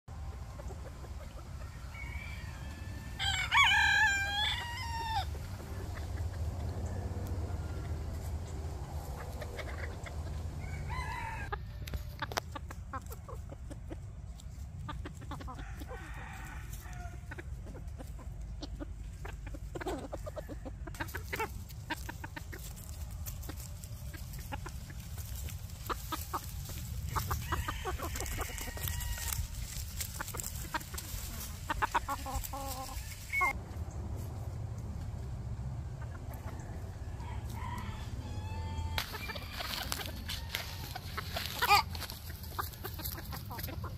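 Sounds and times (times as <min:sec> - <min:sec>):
roosters crowing: 0:00.1 - 0:12.6, 0:15.2 - 0:18.2, 0:19.7 - 0:33.6, 0:35.5 - 0:43.9
chicken clucking: 0:00.1 - 0:43.9.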